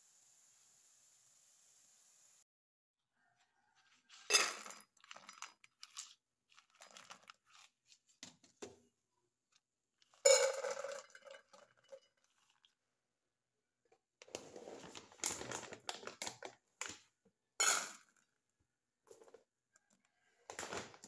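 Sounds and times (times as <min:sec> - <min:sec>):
kibble pouring into metal bowl: 0:04.1 - 0:07.7.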